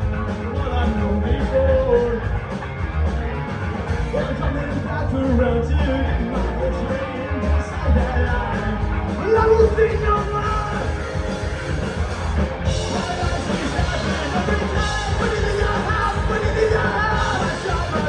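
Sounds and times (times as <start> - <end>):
punk rock band playing: 0.0 - 18.0
person singing: 12.7 - 18.0.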